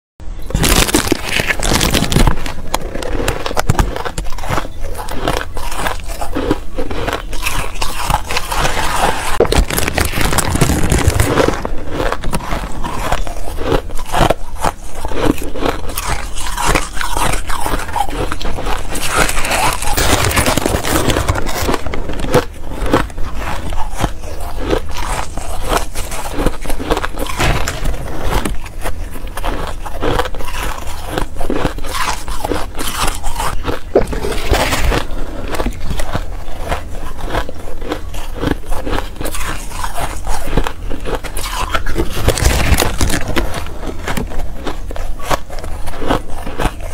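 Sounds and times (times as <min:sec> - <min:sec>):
chewing crunchy ice: 0:00.3 - 0:46.9
plastic paddle scraping ice: 0:07.4 - 0:31.2.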